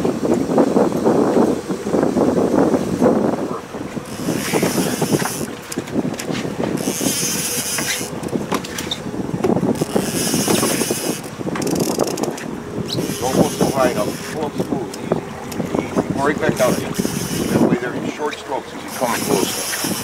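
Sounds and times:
boat motor running: 0.0s - 20.0s
fishing reel buzzing: 4.0s - 5.6s, 6.7s - 9.0s, 9.7s - 14.5s, 15.4s - 20.0s.

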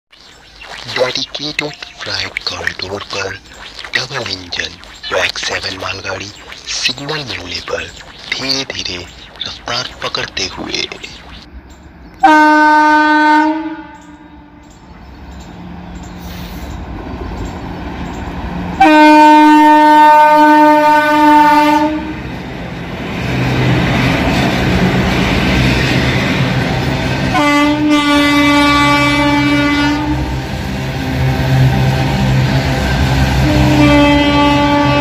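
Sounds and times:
train horn blasts: 12.2s - 14.6s, 18.8s - 22.2s, 27.3s - 30.4s, 33.3s - 35.0s
train rumbling on rails: 14.0s - 35.0s.

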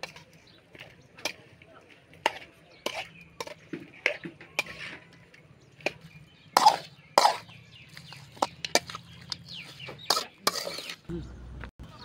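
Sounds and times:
spoon scraping metal pan: 2.2s - 5.2s, 6.5s - 11.1s.

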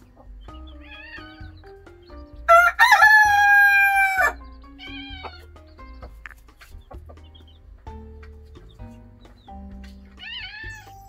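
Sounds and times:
rooster crowing: 2.5s - 4.4s.

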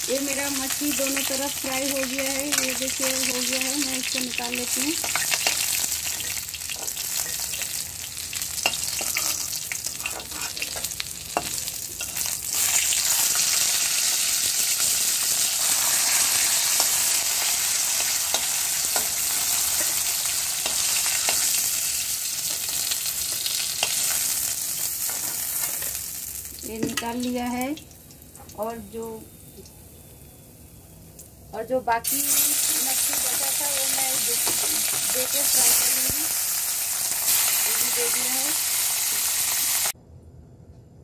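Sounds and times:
fish sizzling in hot oil: 0.0s - 28.7s, 32.1s - 40.0s
spatula scraping a pan: 8.6s - 13.4s.

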